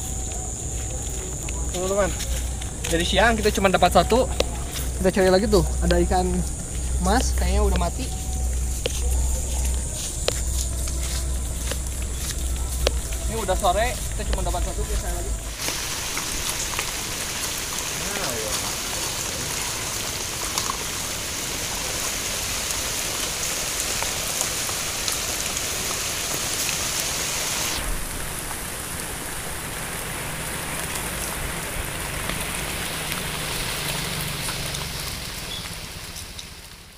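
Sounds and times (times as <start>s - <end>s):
dense crackling hiss: 0.0s - 36.9s.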